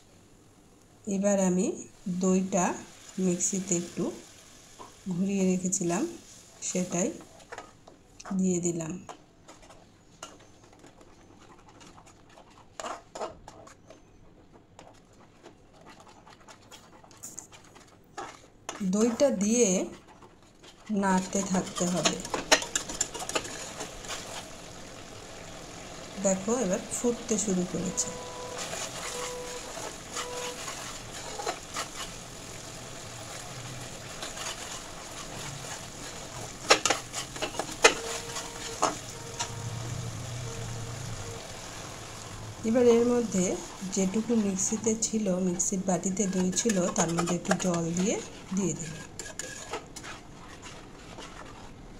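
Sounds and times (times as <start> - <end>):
spatula scraping paste in metal pan: 9.5 - 14.2, 14.8 - 24.4, 27.0 - 32.3, 34.0 - 39.6, 43.8 - 51.8.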